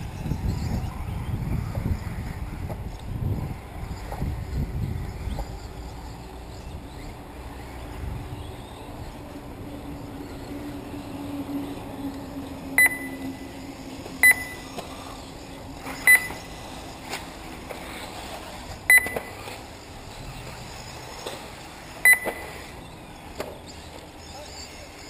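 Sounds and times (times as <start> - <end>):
short sharp electronic beeps: 12.8 - 13.4, 14.2 - 14.7, 16.0 - 16.5, 18.9 - 19.4, 22.0 - 22.7.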